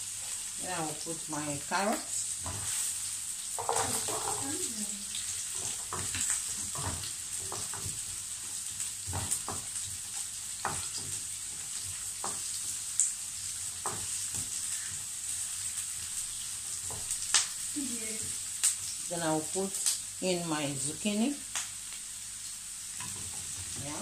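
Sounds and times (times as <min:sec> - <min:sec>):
vegetables sizzling in oil: 0:00.0 - 0:24.0
wooden spoon scraping pan: 0:03.6 - 0:04.6.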